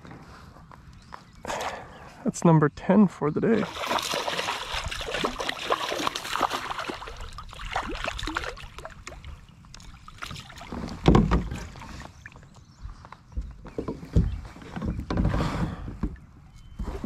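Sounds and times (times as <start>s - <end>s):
water splashing and dripping: 3.6s - 12.5s.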